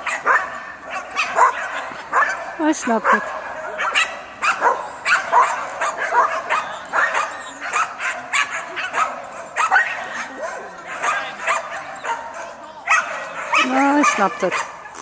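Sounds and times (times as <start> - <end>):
dog barking quick yappy barks: 0.0 - 10.3.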